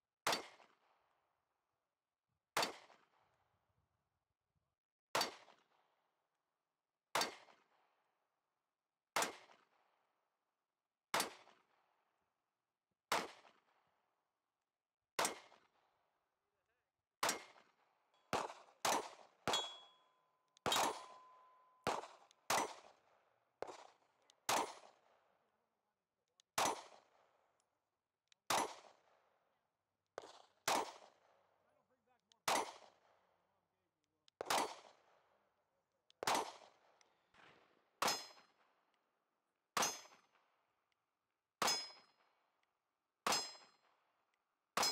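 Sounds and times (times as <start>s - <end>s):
pistol shots: 0.2s - 0.8s, 2.6s - 3.2s, 5.2s - 5.6s, 7.2s - 7.6s, 9.2s - 9.7s, 11.2s - 11.7s, 13.1s - 13.7s, 15.2s - 15.7s, 17.2s - 20.0s, 20.6s - 23.0s, 23.6s - 25.2s, 26.6s - 27.2s, 28.5s - 29.2s, 30.2s - 31.4s, 32.4s - 33.2s, 34.4s - 35.2s, 36.2s - 38.6s, 41.6s - 42.0s
bullets clanging off steel: 19.5s - 21.6s, 41.6s - 42.0s.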